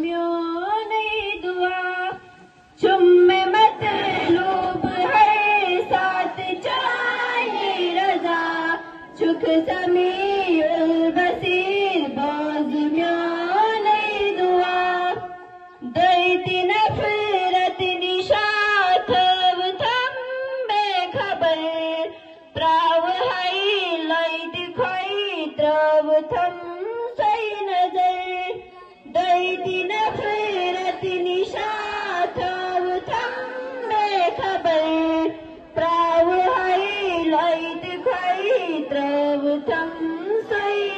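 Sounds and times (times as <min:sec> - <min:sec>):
children singing a prayer: 0:02.4 - 0:15.2, 0:26.2 - 0:40.9.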